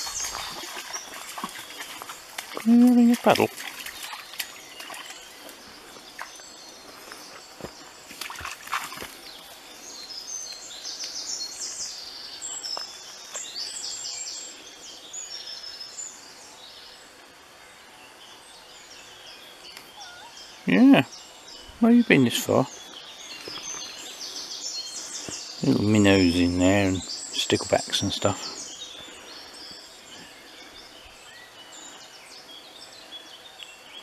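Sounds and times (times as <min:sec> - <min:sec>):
dog splashing in water: 0:00.0 - 0:05.2, 0:08.2 - 0:09.2
stream water trickling: 0:00.0 - 0:11.2
songbird singing high notes: 0:19.7 - 0:22.8.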